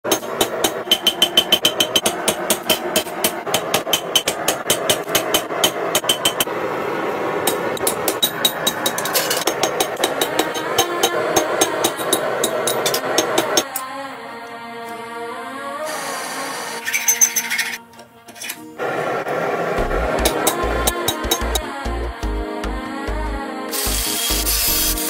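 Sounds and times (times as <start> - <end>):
hammer blows ringing on anvil: 0.1 - 6.5, 7.5 - 13.7
steady background noise: 0.1 - 22.2.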